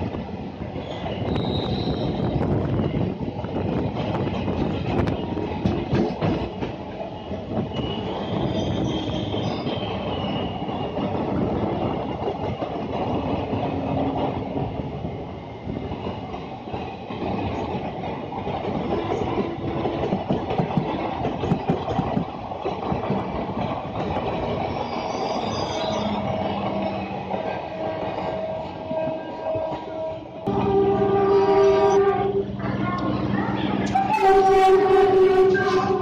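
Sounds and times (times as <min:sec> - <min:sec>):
train wheels rumbling on rails: 0:00.0 - 0:36.0
wheels clacking over rail joints: 0:16.0 - 0:30.8
faint squealing tones: 0:24.8 - 0:26.6.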